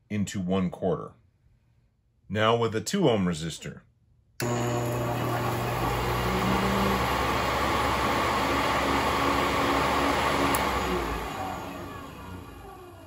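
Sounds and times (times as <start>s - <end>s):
motor whirring: 4.4s - 13.0s
power switch click: 10.4s - 10.8s.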